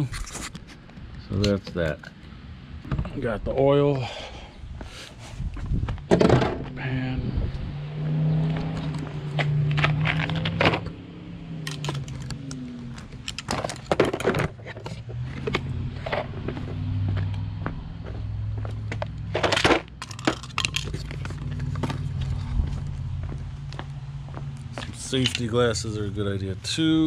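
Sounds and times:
tools clicking and clattering: 11.6s - 16.3s, 19.3s - 22.5s, 24.9s - 25.7s.

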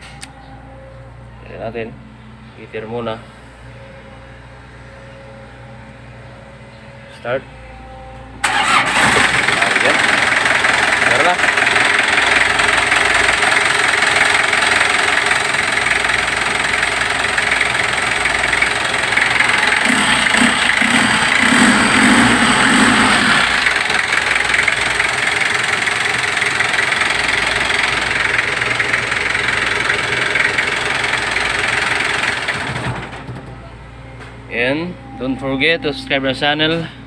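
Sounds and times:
diesel engine running: 8.4s - 35.2s.

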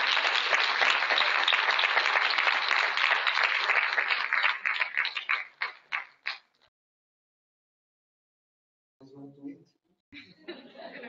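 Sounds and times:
audience applauding: 0.0s - 6.6s.

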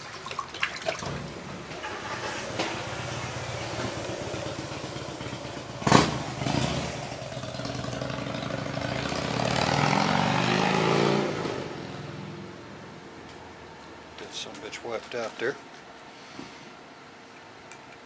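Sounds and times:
vehicle engine running: 1.7s - 10.1s.

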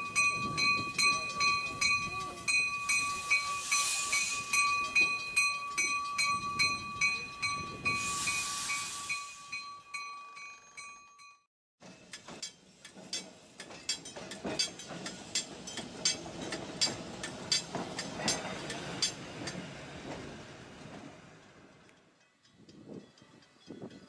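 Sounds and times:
train car pulsing high tones: 0.0s - 11.5s
streetcar wheels clicking on rails: 11.8s - 24.0s.

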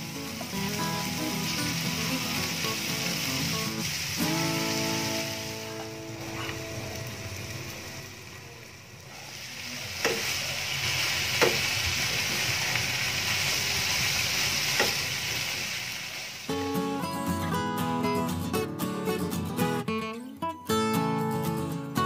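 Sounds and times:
food sizzling in a frying pan: 0.0s - 17.4s.

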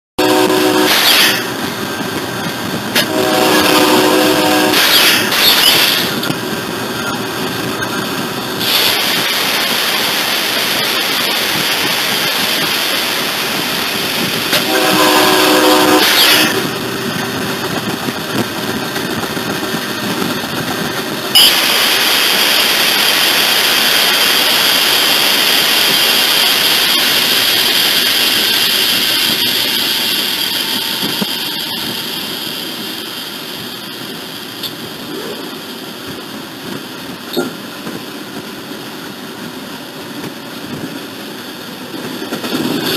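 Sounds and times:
locomotive horn: 0.2s - 1.6s, 2.9s - 5.4s, 14.5s - 16.8s
locomotive wheel and engine noise: 0.2s - 42.9s
loud steady hiss: 0.2s - 42.9s.

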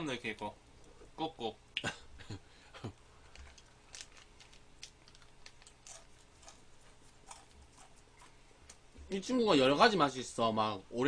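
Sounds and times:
crunchy pastry being eaten: 3.3s - 8.4s.

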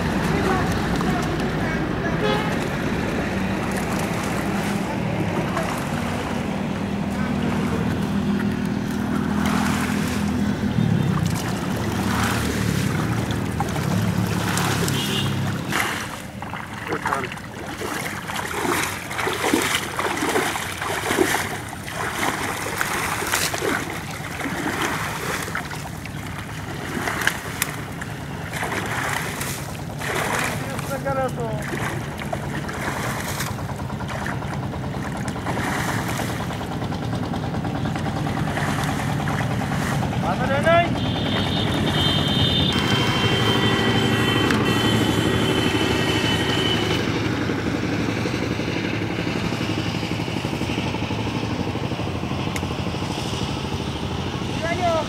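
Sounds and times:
short splashes: 0.0s - 47.1s
water sloshing: 0.0s - 47.1s
low engine hum: 0.0s - 55.0s
wet leaves rustling: 2.5s - 33.7s.

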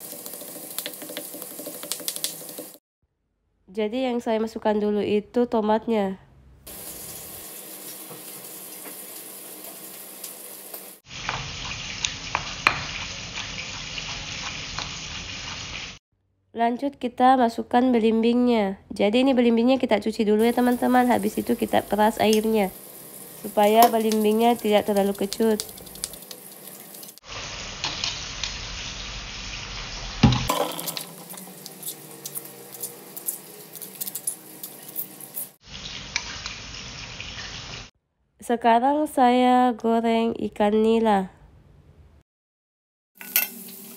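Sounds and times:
spoon scraping: 30.5s - 35.6s, 43.2s - 43.7s.

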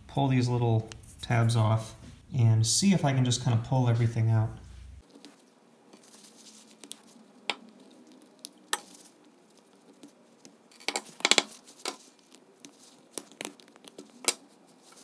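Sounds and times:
small knocks and scrapes: 4.6s - 15.0s.

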